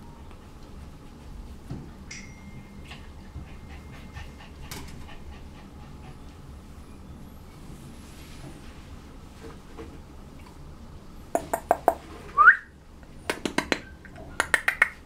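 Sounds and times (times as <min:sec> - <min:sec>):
puppy panting and sniffing: 0:02.8 - 0:06.8.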